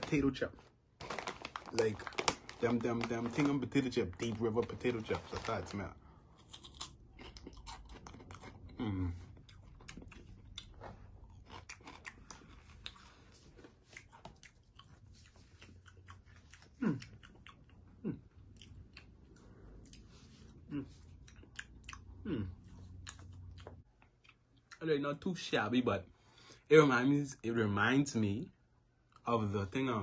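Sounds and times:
crunchy chips being chewed: 6.4 - 17.8.

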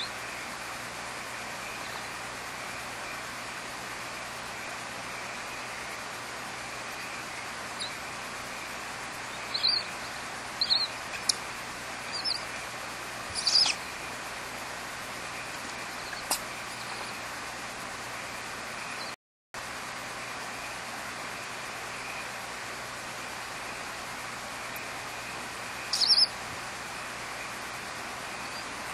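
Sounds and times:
steady hiss: 0.0 - 28.9
owl chirping calls: 7.0 - 14.2, 15.4 - 17.2, 25.8 - 26.4, 28.3 - 28.8.

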